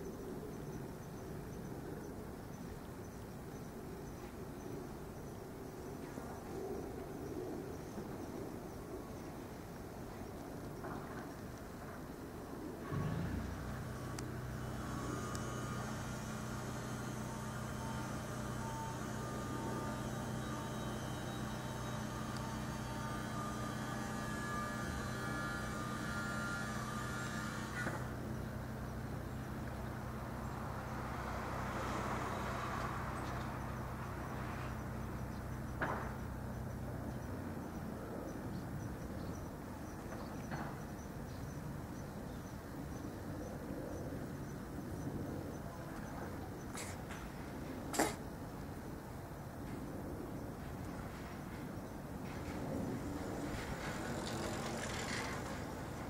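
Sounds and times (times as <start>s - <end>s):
engine humming: 12.8s - 38.6s, 52.2s - 56.0s.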